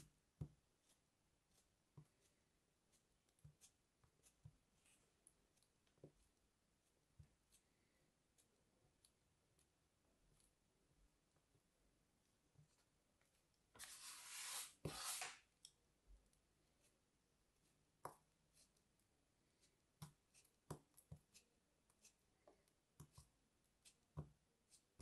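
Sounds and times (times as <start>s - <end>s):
knife slicing through sand: 13.8s - 15.4s.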